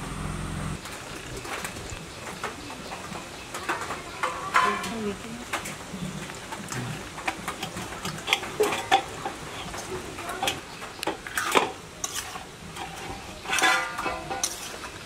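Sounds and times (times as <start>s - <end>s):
food sizzling: 0.0s - 15.0s
metal spatula scraping pan: 7.5s - 15.0s.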